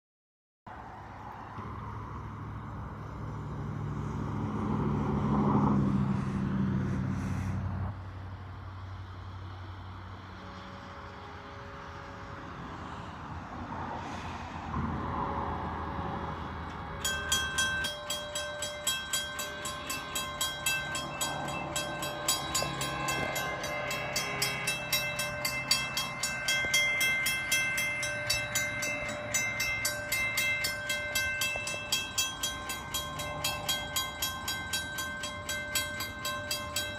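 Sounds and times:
distant train horn: 0:10.0 - 0:14.4, 0:15.2 - 0:36.9
railroad crossing bell ringing: 0:15.8 - 0:36.9.

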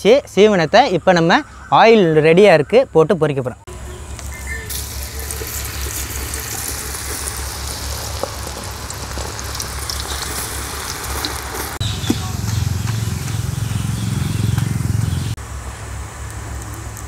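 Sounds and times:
oil sizzling and bubbling: 0:04.1 - 0:11.8.

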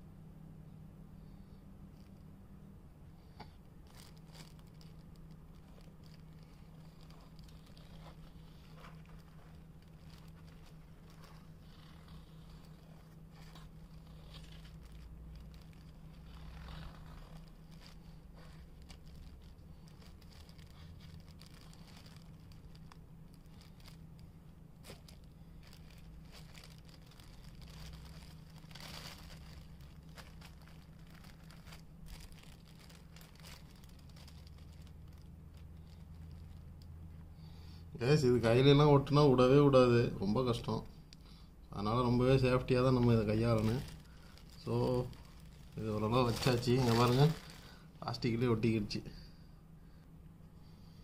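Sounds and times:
steady low hum: 0:00.0 - 0:51.0
plastic bag crinkling: 0:03.7 - 0:37.2, 0:41.8 - 0:48.9.

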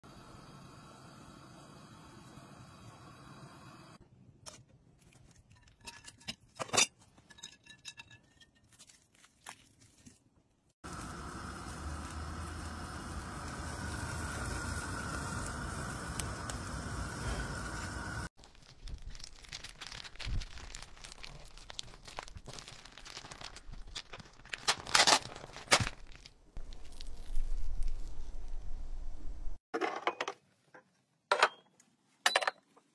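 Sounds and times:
plastic packaging crinkling and tearing: 0:08.7 - 0:10.2, 0:18.4 - 0:28.6
water boiling in saucepan: 0:10.8 - 0:18.3.

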